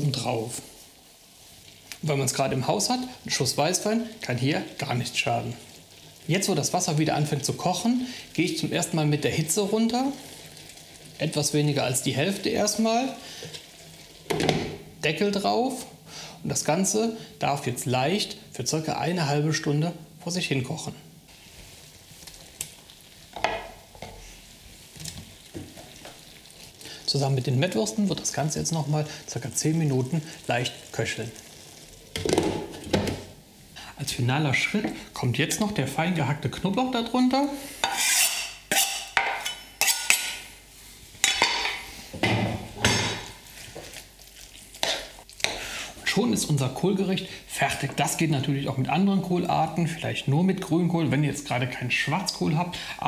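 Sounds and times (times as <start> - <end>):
stew sizzling in a pan: 0.0 - 36.2, 37.1 - 48.2
utensil stirring stew in pan: 9.7 - 15.0, 21.3 - 33.7
knife scraping on cutting board: 37.8 - 40.3.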